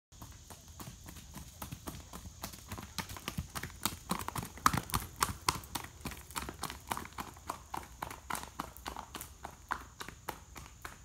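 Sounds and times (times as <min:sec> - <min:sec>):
horse hooves on gravel: 0:00.1 - 0:11.0.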